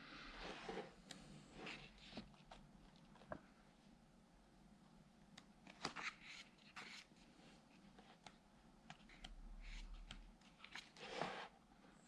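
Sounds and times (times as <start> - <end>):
book pages turning: 5.7 - 11.5.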